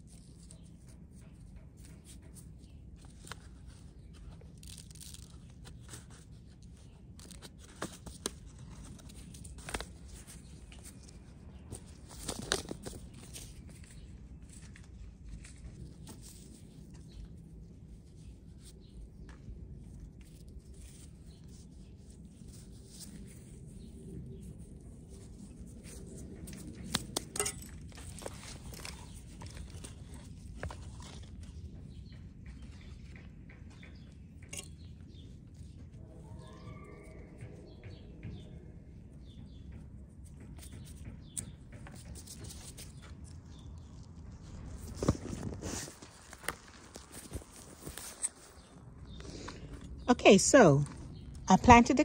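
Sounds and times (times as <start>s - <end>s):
soft rustles and clicks: 0.0s - 36.0s, 40.2s - 52.0s.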